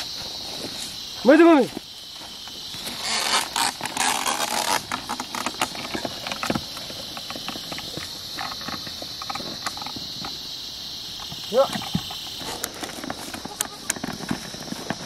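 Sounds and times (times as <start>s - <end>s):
insects droning: 0.0s - 15.0s
plough scraping through soil: 2.8s - 9.6s.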